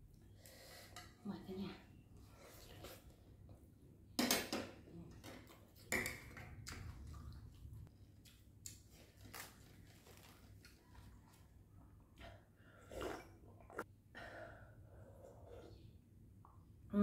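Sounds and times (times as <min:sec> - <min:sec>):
slurping soup: 0:12.7 - 0:13.9.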